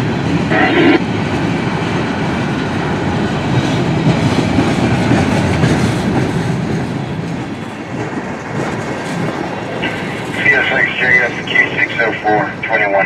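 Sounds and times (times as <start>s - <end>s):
freight train wheels clacking on rails: 0.0s - 13.0s.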